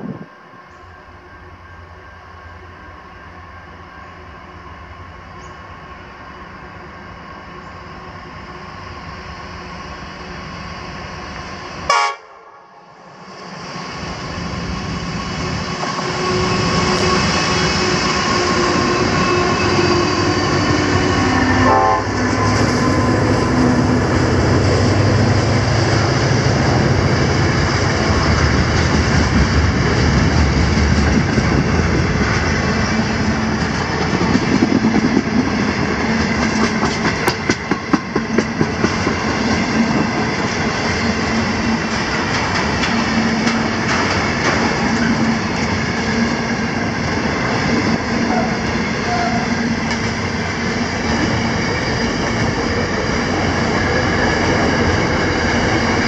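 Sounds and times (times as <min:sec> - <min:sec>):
diesel locomotive engine rumble: 0:00.0 - 0:56.0.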